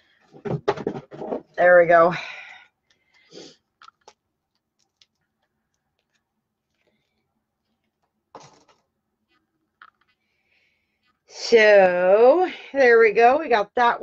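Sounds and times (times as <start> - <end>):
small objects clicking and tapping: 2.5 - 7.2, 9.7 - 10.2.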